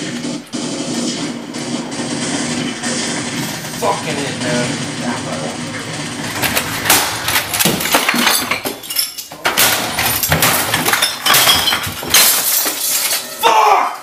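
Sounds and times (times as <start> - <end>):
clatter of knocks and crashes: 5.8 - 13.4.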